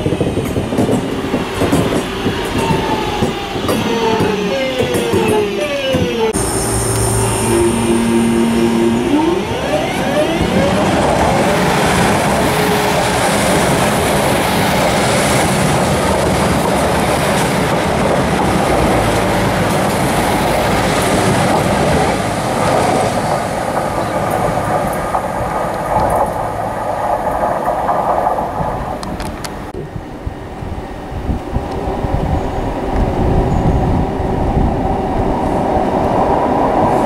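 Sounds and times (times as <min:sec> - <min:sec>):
train wheels rumbling on rails: 0:00.0 - 0:37.0
clickety-clack over rail joints: 0:00.1 - 0:06.3, 0:09.8 - 0:29.8.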